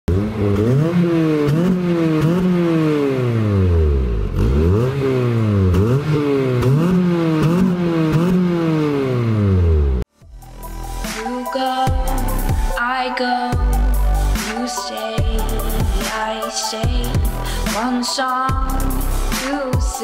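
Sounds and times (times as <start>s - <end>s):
car engine revving: 0.1s - 20.0s.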